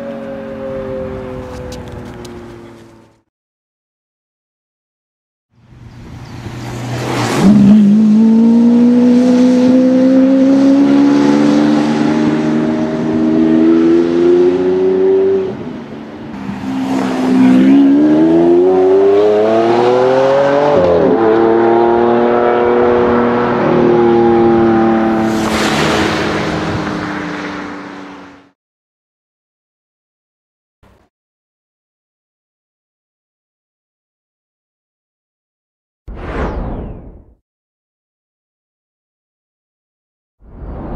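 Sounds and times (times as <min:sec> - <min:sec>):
sports car engine accelerating: 0:16.4 - 0:28.2.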